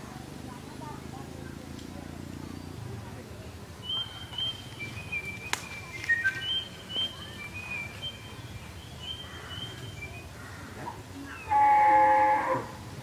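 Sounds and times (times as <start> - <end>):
small birds chirping: 0.6 - 11.7
cow mooing loudly: 11.5 - 12.8.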